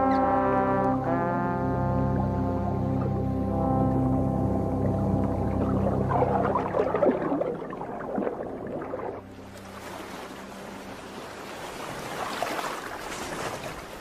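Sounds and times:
soundtrack music with low held notes: 0.0s - 12.0s
wind: 0.0s - 14.0s
sea waves: 4.8s - 14.0s.

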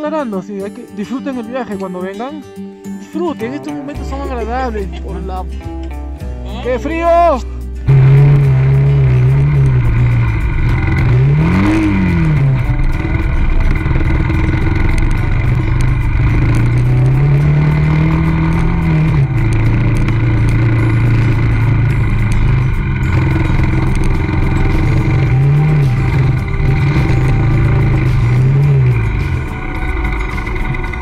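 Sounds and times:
motorcycle engine revving: 7.8s - 31.0s.

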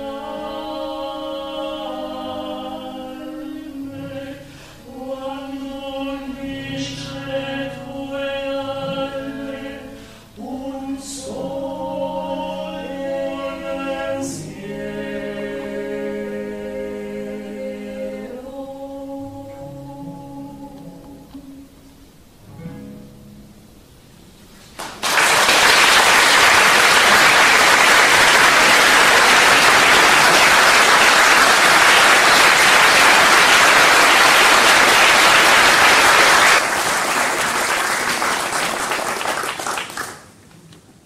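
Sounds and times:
audience applause: 24.8s - 40.3s.

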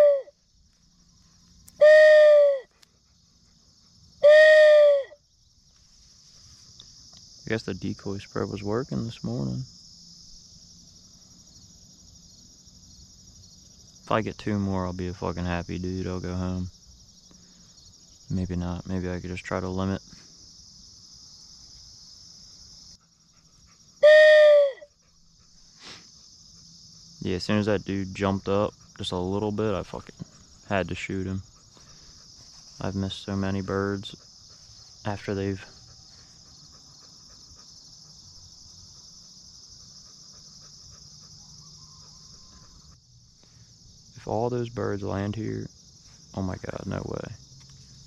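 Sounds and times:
loud pitched cry: 0.0s - 0.4s, 1.8s - 2.7s, 4.2s - 5.2s, 24.0s - 24.9s
crickets trilling: 0.0s - 48.0s
insects chirping: 0.0s - 48.0s.

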